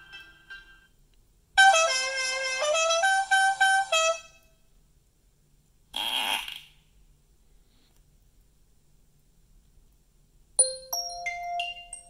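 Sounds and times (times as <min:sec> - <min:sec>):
horn-like tune from phone speaker: 0:01.6 - 0:04.4.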